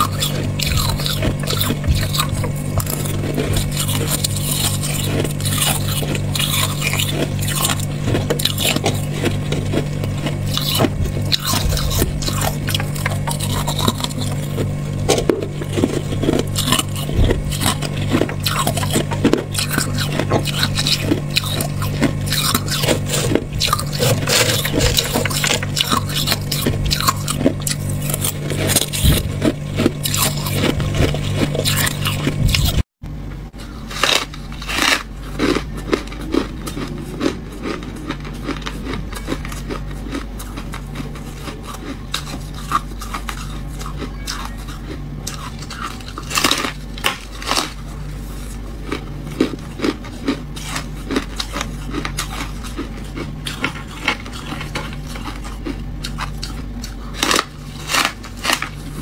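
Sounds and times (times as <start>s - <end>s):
metal spoon scraping frost: 0.0s - 32.8s
crunchy chewing of ice: 0.0s - 32.9s, 33.5s - 59.0s.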